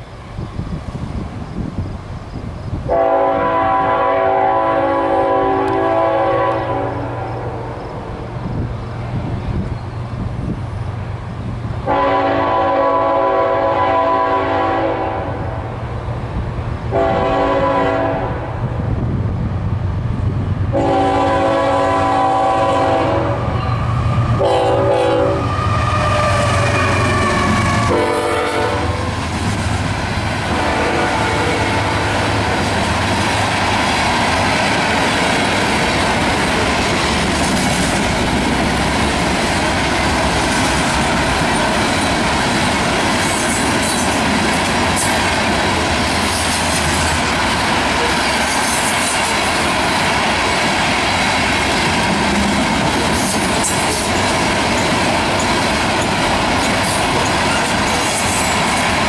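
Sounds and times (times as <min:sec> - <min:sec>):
train wheels rumbling on rails: 0:00.0 - 0:59.0
high wheel squeals: 0:23.5 - 0:24.4, 0:25.3 - 0:28.1
clickety-clack over rail joints: 0:25.4 - 0:59.0.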